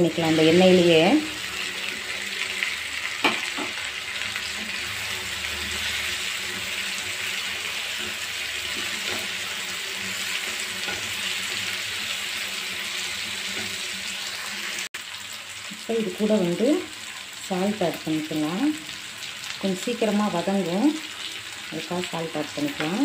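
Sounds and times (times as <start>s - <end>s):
food sizzling in oil: 0.0s - 23.0s
wooden spatula scraping pan: 7.8s - 12.2s.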